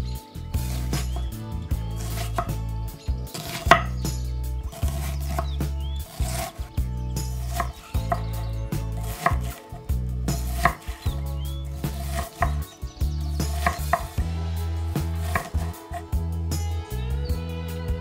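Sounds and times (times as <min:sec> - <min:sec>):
knife cutting onion: 0:00.6 - 0:01.3, 0:02.0 - 0:02.6, 0:03.3 - 0:04.0, 0:04.7 - 0:06.6, 0:07.3 - 0:08.4, 0:09.0 - 0:09.6, 0:10.3 - 0:11.1, 0:11.8 - 0:12.6, 0:13.4 - 0:14.2, 0:15.1 - 0:16.0
knife knocking on wooden board: 0:10.4 - 0:10.9, 0:13.5 - 0:14.2, 0:15.2 - 0:15.6.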